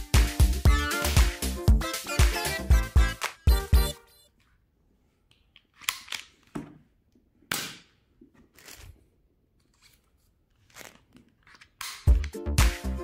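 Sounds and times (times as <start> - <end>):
toy packaging rustling: 9.6 - 12.2
packaging tearing: 10.6 - 11.8.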